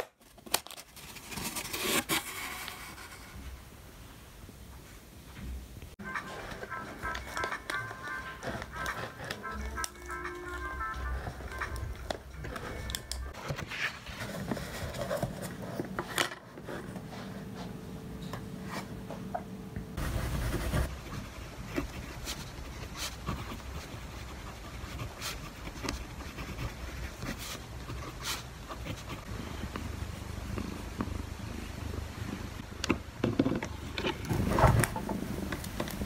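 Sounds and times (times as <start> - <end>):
paper pages rustling: 0.1 - 3.3, 6.0 - 17.6
pen tapping and scratching: 6.2 - 13.3, 20.0 - 29.9.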